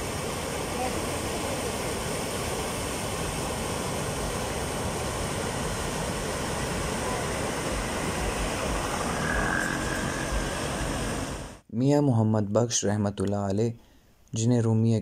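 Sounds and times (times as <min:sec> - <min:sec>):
water rushing over weir: 0:00.0 - 0:11.6.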